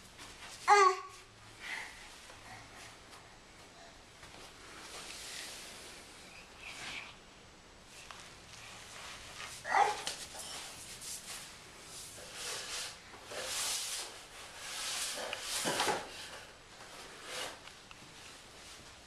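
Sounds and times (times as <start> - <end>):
cardboard box scraping on tile: 9.2 - 17.6.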